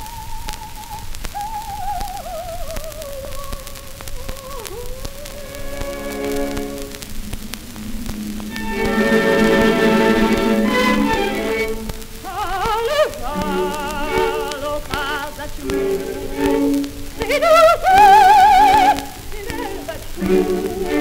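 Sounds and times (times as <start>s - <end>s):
soprano singing operatic aria: 0.0s - 7.0s, 8.5s - 21.0s
record surface crackle: 0.0s - 21.0s
orchestral accompaniment: 8.2s - 11.9s.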